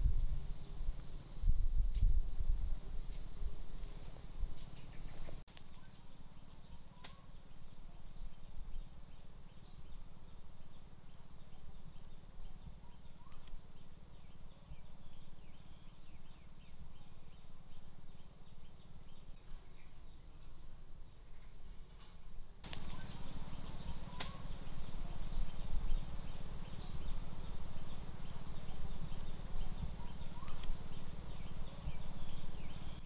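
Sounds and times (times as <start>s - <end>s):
low steady rumble: 0.0s - 5.4s, 19.4s - 33.0s
high steady hiss: 0.0s - 5.5s, 19.3s - 33.0s
bird chirps: 2.4s - 8.5s, 18.4s - 33.0s.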